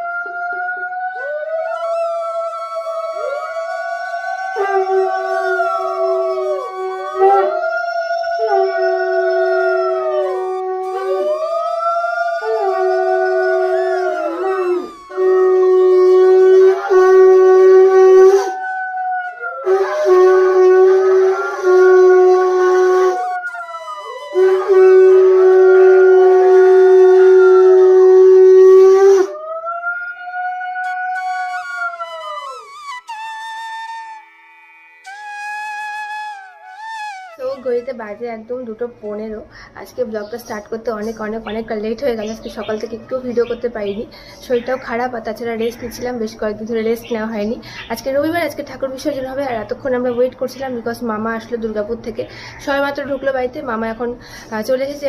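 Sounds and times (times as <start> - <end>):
dog howling: 0.0 - 37.8.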